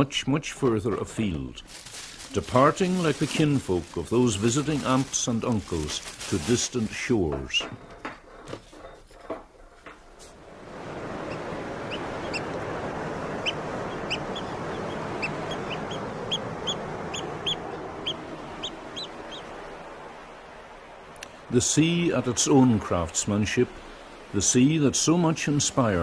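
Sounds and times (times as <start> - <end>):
sea waves breaking: 1.9 - 7.4, 10.3 - 26.0
gulls calling: 10.4 - 26.0.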